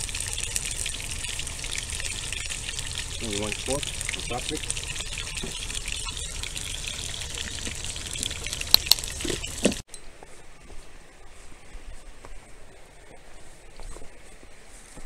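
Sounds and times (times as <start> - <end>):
quiet outdoor background: 0.0 - 15.0
sharp clicks: 8.7 - 9.1.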